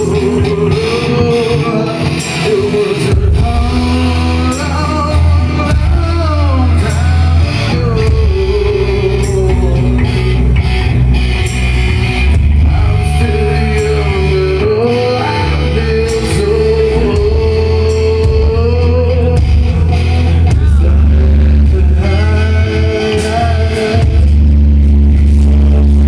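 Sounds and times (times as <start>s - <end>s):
live rock band: 0.0s - 26.0s
person singing long note: 20.5s - 24.1s.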